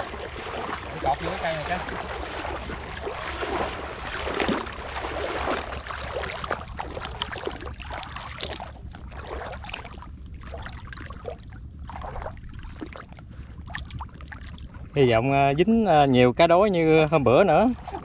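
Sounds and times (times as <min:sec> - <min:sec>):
water splashing and sloshing: 0:00.0 - 0:15.7, 0:17.0 - 0:18.0.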